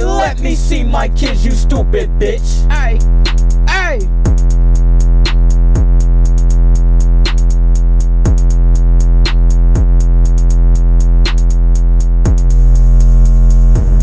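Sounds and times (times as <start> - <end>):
deep kick drums: 0.0 - 12.9
low bass: 0.0 - 14.0.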